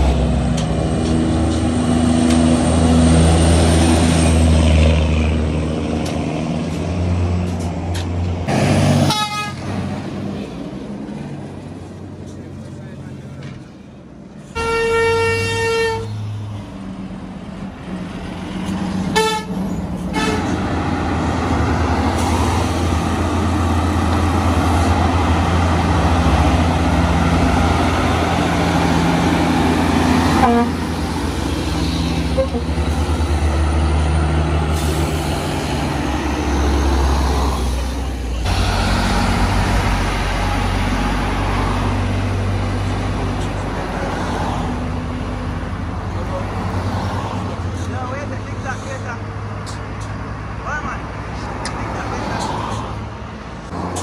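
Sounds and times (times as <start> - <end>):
diesel truck engines droning: 0.0 - 54.0
truck horn blasts: 9.0 - 9.7, 14.6 - 16.2, 19.1 - 20.6, 30.3 - 30.9, 32.3 - 32.8.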